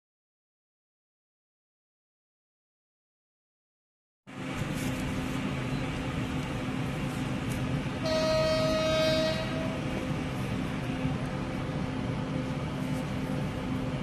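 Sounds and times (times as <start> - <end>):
steady rumbling noise: 4.3 - 14.0
train horn: 8.0 - 10.1.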